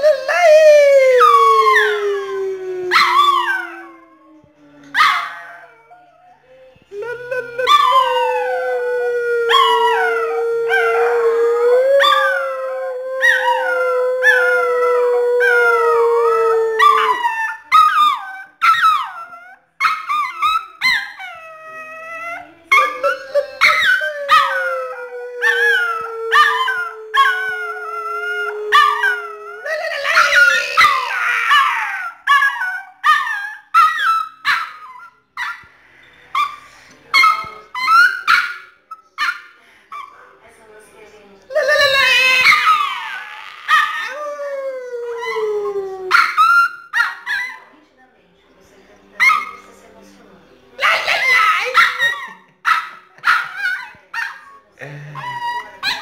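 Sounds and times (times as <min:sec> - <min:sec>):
small dog howling: 0:00.0 - 0:06.4, 0:07.0 - 0:34.9, 0:41.5 - 0:47.6.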